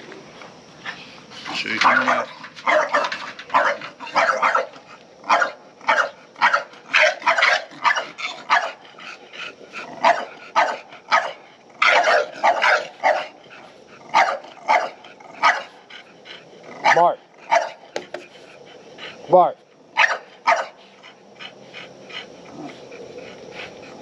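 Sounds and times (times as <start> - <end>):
dog barking: 1.8 - 8.8, 10.0 - 13.4, 14.1 - 15.8, 16.8 - 17.9, 20.0 - 20.8.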